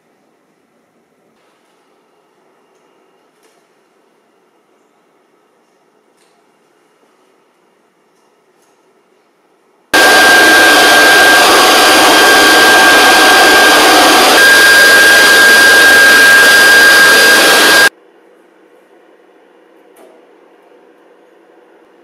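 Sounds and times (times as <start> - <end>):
gas turbine whistling roar: 10.0 - 17.9.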